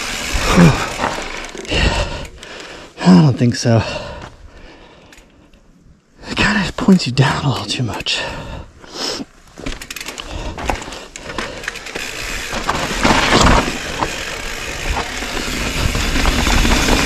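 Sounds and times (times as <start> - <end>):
bike rolling noise: 0.0 - 3.0, 9.4 - 17.0
tyres crunching on loose rock: 9.6 - 17.0.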